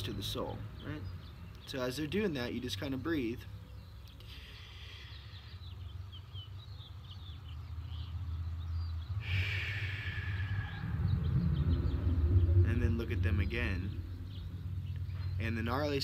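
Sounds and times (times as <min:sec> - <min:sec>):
faint bird chirps: 0:00.0 - 0:16.0
man breathing deeply: 0:04.2 - 0:05.8, 0:09.2 - 0:11.5
steady low rumble: 0:08.5 - 0:16.0.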